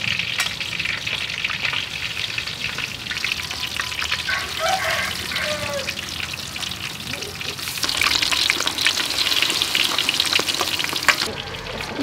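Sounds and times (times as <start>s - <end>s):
chicken deep-frying in oil: 0.0s - 12.0s.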